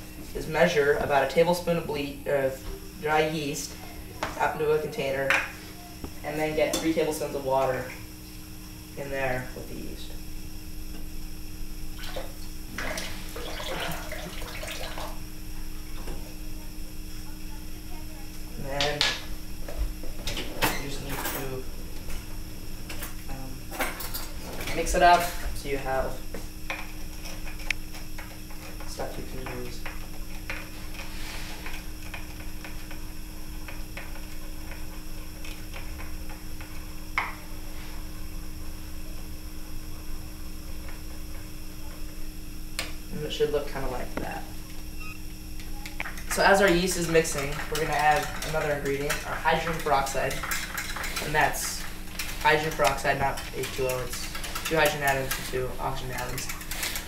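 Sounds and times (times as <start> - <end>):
faucet water splashing into sink: 12.0 - 15.2.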